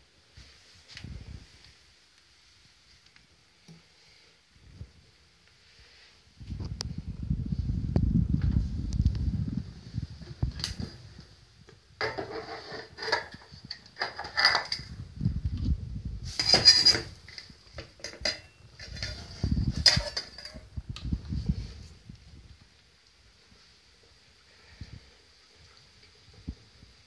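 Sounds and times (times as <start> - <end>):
kitchen metalware clinking: 14.0 - 14.9, 16.4 - 17.4, 18.0 - 20.6.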